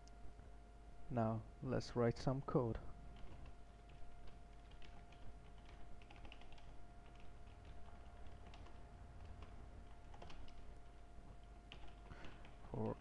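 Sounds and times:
steady low hum: 0.0s - 13.0s
computer keyboard keys clicking: 3.2s - 13.0s.

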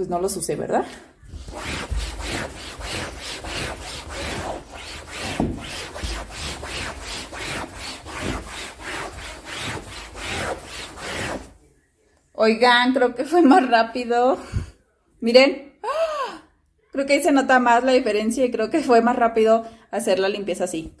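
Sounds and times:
rag rubbing on fabric sofa: 1.3s - 11.6s.

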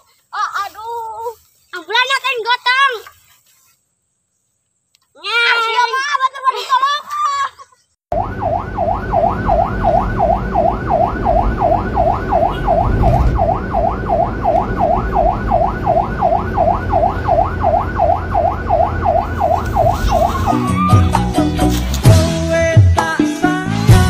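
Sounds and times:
siren wailing: 8.1s - 21.6s
low rumble: 8.5s - 21.4s.

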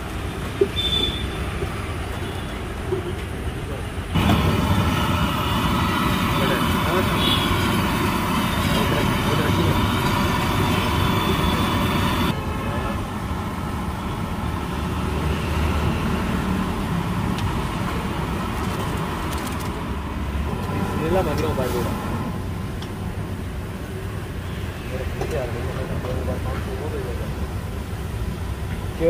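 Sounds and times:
gas burner rushing: 4.1s - 12.4s, 20.5s - 23.0s.

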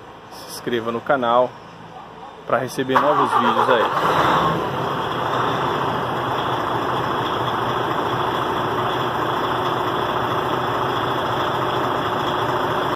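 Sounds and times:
truck diesel engine idling: 3.0s - 12.9s.

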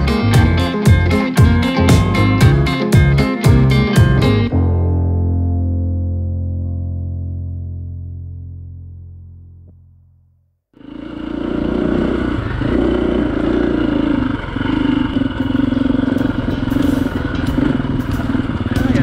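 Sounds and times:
piano music: 0.0s - 9.5s, 16.1s - 19.0s
dirt bike engine running: 10.8s - 19.0s
sharp ticks: 15.2s - 19.0s.

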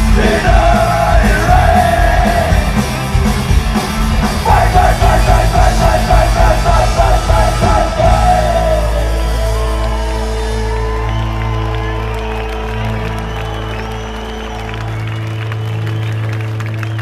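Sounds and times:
singer shouting vocals: 0.0s - 2.8s, 4.4s - 9.6s
punk band playing live: 0.0s - 14.3s.

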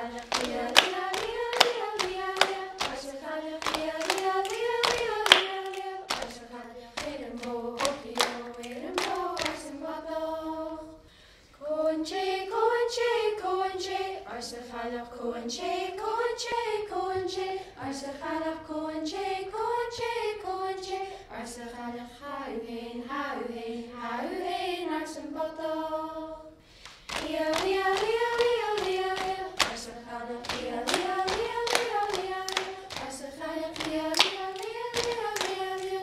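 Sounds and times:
rhythmic hand claps: 0.0s - 9.8s, 26.8s - 36.0s
young voices singing together: 0.0s - 36.0s.

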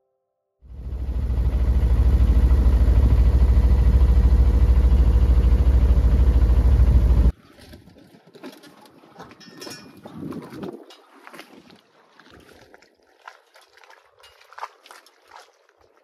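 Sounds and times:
boat engine running: 0.6s - 8.0s.

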